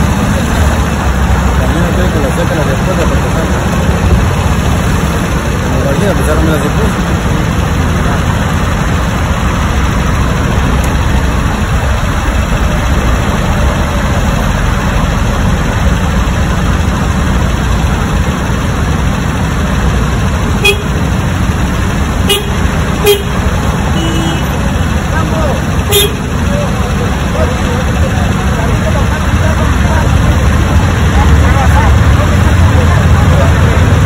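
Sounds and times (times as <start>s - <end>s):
heavy city traffic rumble: 0.0s - 34.0s
car horn toots: 20.6s - 21.1s, 22.2s - 24.6s, 25.8s - 26.3s.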